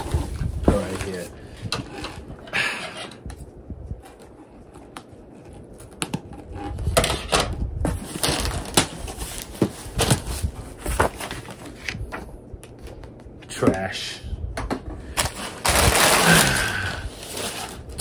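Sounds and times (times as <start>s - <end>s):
cardboard box crinkling and tearing: 8.0s - 10.4s, 15.2s - 18.0s.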